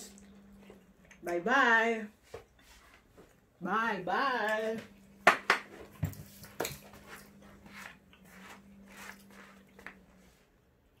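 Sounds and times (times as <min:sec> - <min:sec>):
faint steady hum: 0:00.0 - 0:11.0
soft shuffling: 0:02.1 - 0:03.4, 0:05.8 - 0:10.6.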